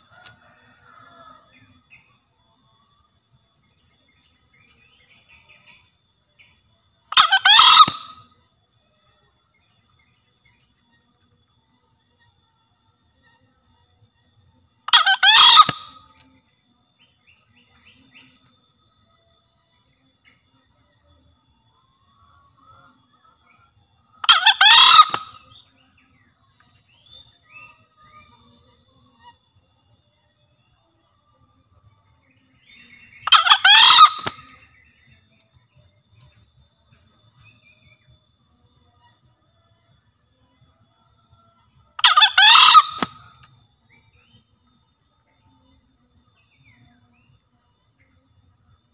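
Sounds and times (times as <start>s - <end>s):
junglefowl cock crowing: 0.0s - 1.8s, 7.1s - 8.2s, 14.9s - 16.2s, 24.2s - 25.6s, 33.1s - 34.5s, 42.0s - 43.3s
faint chirps: 0.0s - 48.9s.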